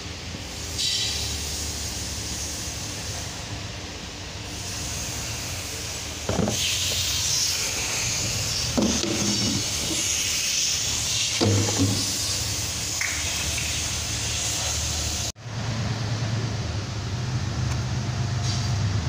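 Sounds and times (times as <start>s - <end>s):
steady hiss: 4.4s - 15.3s.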